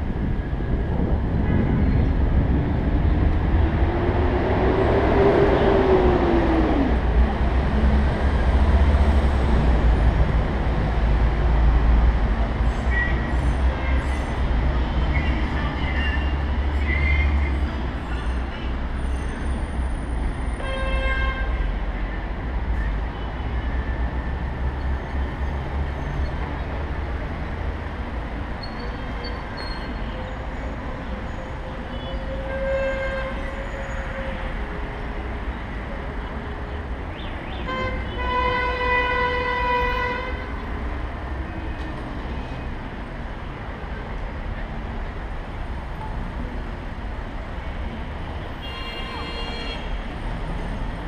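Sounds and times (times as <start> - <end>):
street traffic rumble: 0.0 - 51.0
vehicle horns: 20.6 - 21.7, 31.9 - 34.6, 37.6 - 40.6, 48.5 - 50.0.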